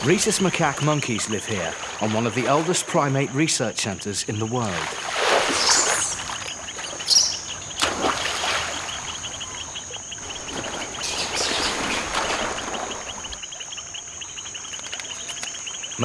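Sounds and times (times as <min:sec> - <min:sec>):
insects chirping: 0:00.0 - 0:16.0
water splashing: 0:00.0 - 0:16.0.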